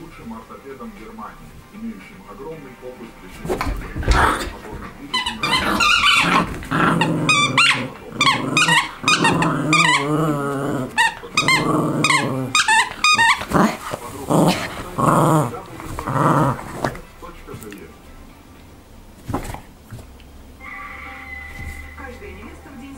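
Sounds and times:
small dog growling in play: 0:05.2 - 0:17.0.

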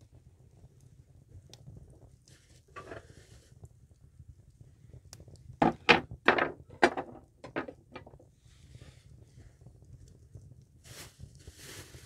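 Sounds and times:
sharp wooden knocks: 0:05.6 - 0:08.1.

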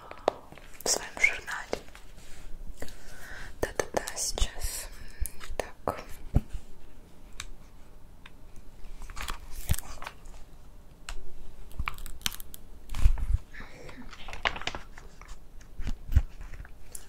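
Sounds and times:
notebook pages flipping: 0:09.0 - 0:10.5, 0:14.1 - 0:16.7.

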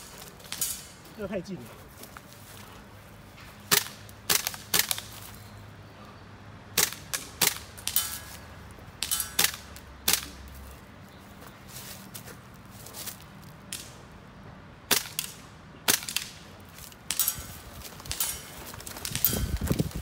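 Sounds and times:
airsoft rifle shots: 0:03.7 - 0:05.1, 0:06.8 - 0:08.2, 0:14.9 - 0:16.4.

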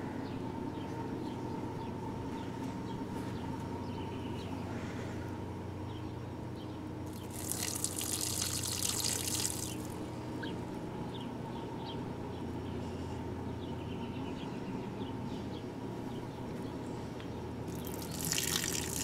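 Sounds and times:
steady background hum: 0:00.0 - 0:19.0
water splashing onto plants: 0:07.1 - 0:10.0, 0:17.7 - 0:19.0.

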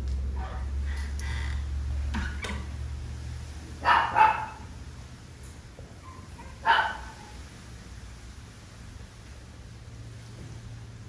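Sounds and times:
dog barking: 0:03.8 - 0:04.8, 0:06.1 - 0:07.4.

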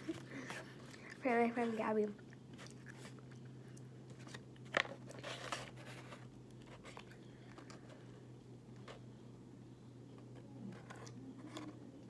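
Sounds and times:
faint candy chewing: 0:02.2 - 0:05.2.

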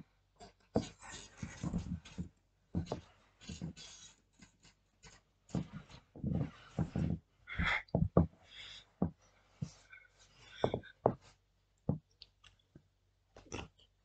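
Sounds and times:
soft knocks and clothing rustles: 0:00.4 - 0:12.9
person breathing hard: 0:07.5 - 0:11.1.

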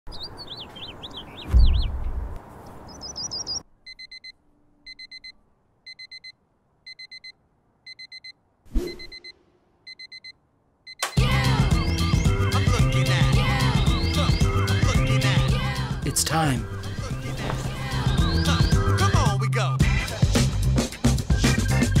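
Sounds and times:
birds chirping: 0:00.1 - 0:04.1, 0:11.2 - 0:19.4
digital alarm clock beeping: 0:03.9 - 0:11.2.

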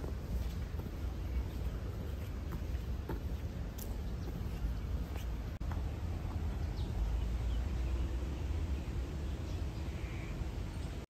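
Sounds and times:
faint bird chirps: 0:06.6 - 0:11.0.

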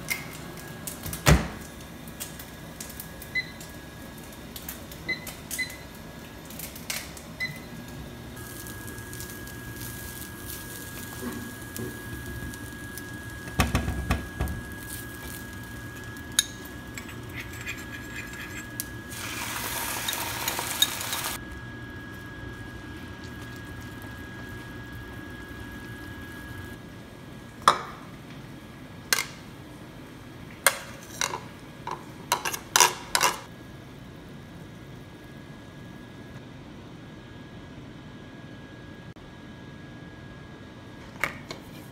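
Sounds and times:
microwave humming: 0:00.0 - 0:32.4
microwave keypad beeps: 0:03.3 - 0:03.6, 0:05.1 - 0:05.9, 0:07.4 - 0:07.7
sauce sizzling in a pan: 0:08.4 - 0:16.9, 0:18.4 - 0:21.4.

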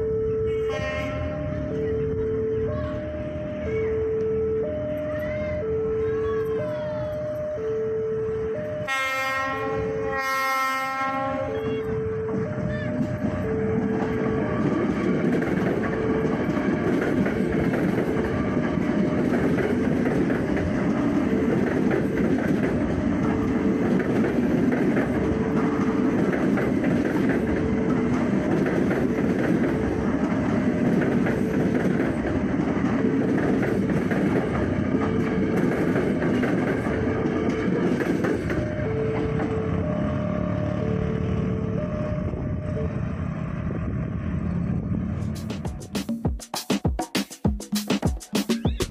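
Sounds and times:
warning tone beeping: 0:00.0 - 0:10.3, 0:11.3 - 0:15.0
train wheels clattering over rails: 0:12.3 - 0:39.8.

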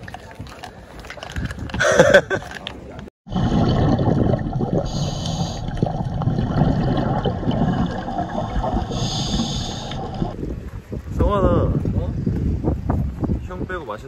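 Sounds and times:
underwater bubbles gurgling: 0:03.3 - 0:10.4.

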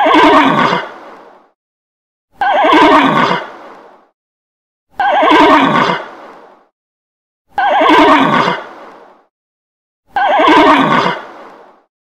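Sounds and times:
horse neighing: 0:00.0 - 0:00.9, 0:02.4 - 0:03.5, 0:05.0 - 0:06.0, 0:07.6 - 0:08.6, 0:10.2 - 0:11.2.

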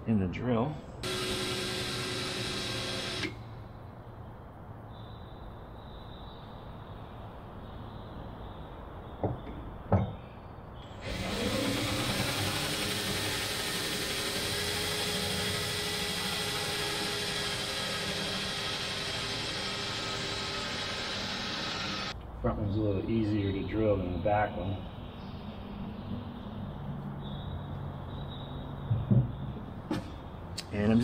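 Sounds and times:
power drill drilling: 0:01.0 - 0:03.4, 0:10.8 - 0:22.1.

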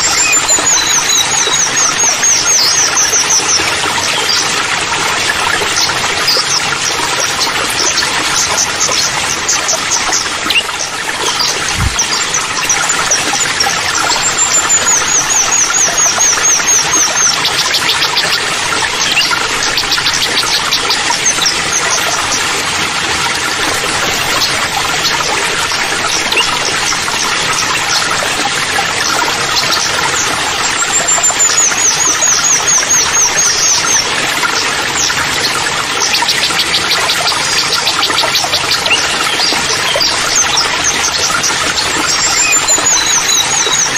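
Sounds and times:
bird singing high trill: 0:00.0 - 0:03.5, 0:42.1 - 0:43.9
waterfall pouring into pool: 0:00.0 - 0:43.9.

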